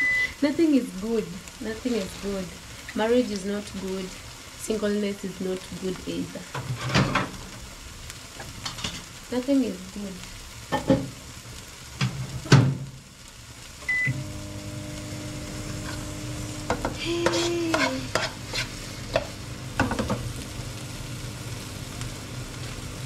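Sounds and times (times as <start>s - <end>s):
microwave oven humming: 0.0s - 0.6s, 13.8s - 23.0s
food sizzling in a frying pan: 0.0s - 23.0s
metal ladle scraping pan: 17.2s - 19.3s.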